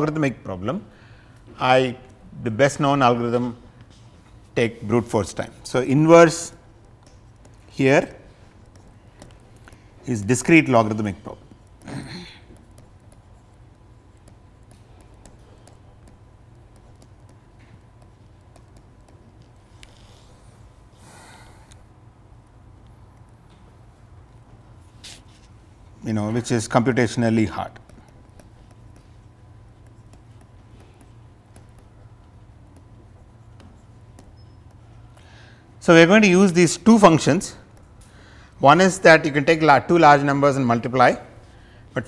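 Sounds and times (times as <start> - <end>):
steady low hum: 0.0 - 42.0
stylus tapping on tablet screen: 6.5 - 20.4, 27.6 - 35.5.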